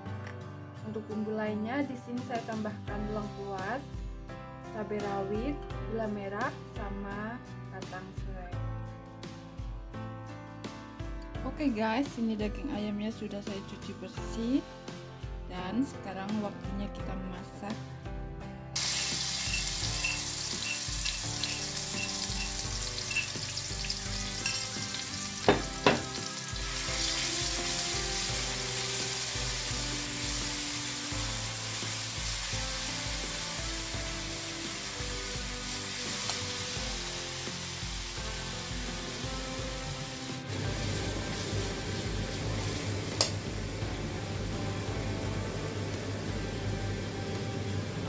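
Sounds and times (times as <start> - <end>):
spice paste sizzling in hot oil: 18.8 - 44.0.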